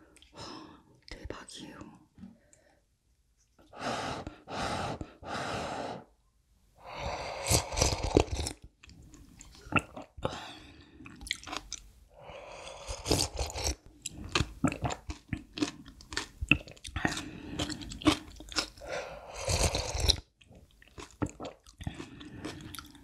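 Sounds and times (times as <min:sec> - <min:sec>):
slurping noodles: 0:07.0 - 0:08.6, 0:12.4 - 0:15.0, 0:17.0 - 0:20.3
wet chewing: 0:11.1 - 0:11.8, 0:12.8 - 0:23.0.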